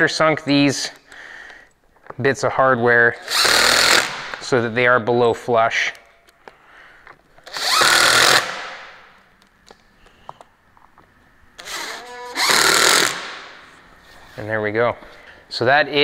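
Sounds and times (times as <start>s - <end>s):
power drill driving screws: 3.2s - 4.4s, 7.4s - 8.8s, 11.6s - 13.5s.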